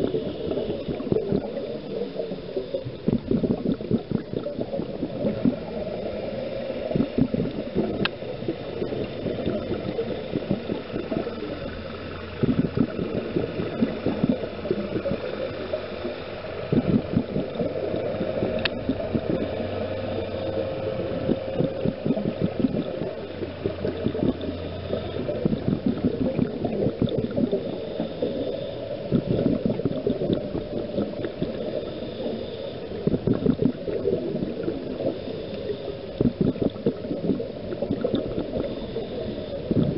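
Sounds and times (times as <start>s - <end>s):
steady low hum: 0.0s - 39.9s
underwater bubbles gurgling: 0.0s - 39.9s.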